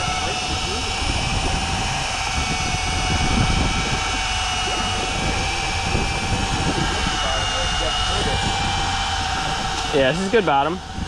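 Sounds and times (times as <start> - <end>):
steady motor drone: 0.0 - 11.0
wind buffeting microphone: 0.0 - 11.0.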